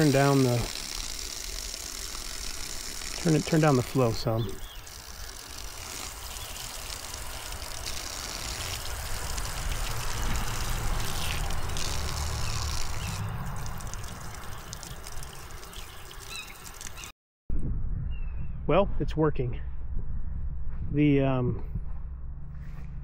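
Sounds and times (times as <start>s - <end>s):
faucet water splashing on hand: 0.0s - 17.1s
low rumble: 17.5s - 23.0s.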